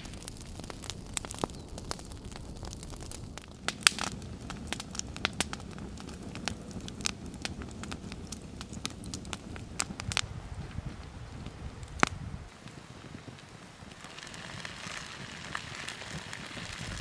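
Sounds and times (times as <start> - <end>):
wood fire crackling: 0.0 - 17.0.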